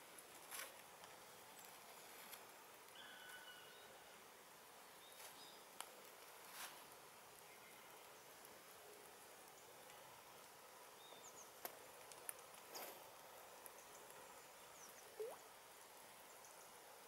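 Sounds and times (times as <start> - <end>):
faint steady hiss: 0.0 - 17.0
faint high chirps and clicks: 2.8 - 3.8, 13.6 - 15.5.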